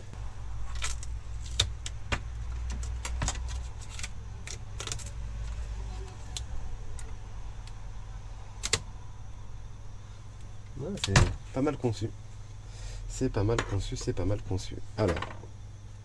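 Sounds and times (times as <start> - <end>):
steady low hum: 0.0 - 16.0
clicks and rattles of computer parts: 0.7 - 5.6.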